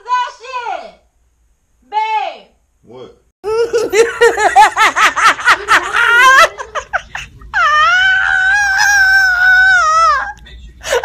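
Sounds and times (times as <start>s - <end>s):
person laughing hard: 3.4s - 11.0s
long high cry: 7.5s - 10.4s.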